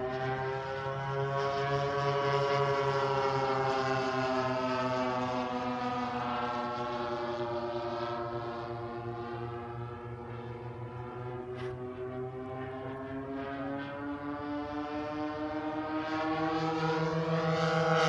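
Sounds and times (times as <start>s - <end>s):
model plane engines droning: 0.0s - 18.0s.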